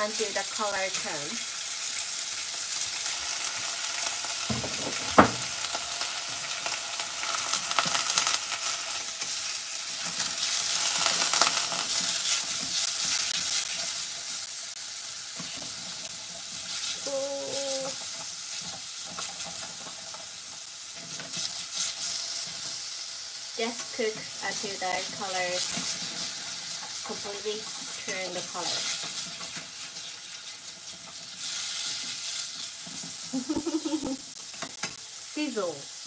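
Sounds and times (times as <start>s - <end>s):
meat sizzling in oil: 0.0s - 36.0s
chopsticks stirring in pan: 15.4s - 22.9s, 25.0s - 33.3s.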